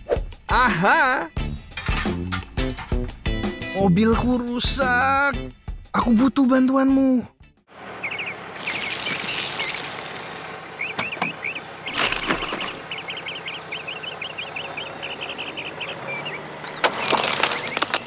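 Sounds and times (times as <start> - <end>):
birds chirping: 7.7 - 18.0
outdoor background noise: 7.7 - 18.0
toy excavator scooping gravel: 8.6 - 10.4, 11.9 - 12.8, 16.8 - 18.0.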